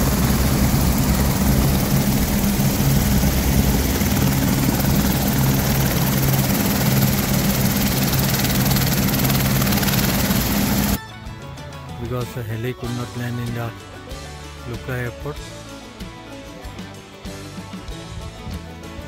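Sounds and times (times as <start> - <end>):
helicopter turbine and rotors droning: 0.0 - 11.0.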